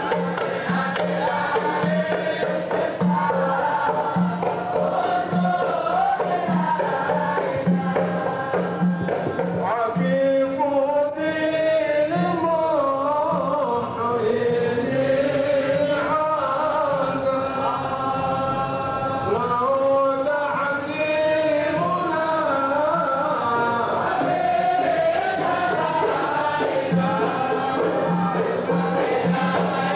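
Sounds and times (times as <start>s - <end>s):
men chanting together: 0.0s - 29.9s
sustained sung line: 0.0s - 29.9s.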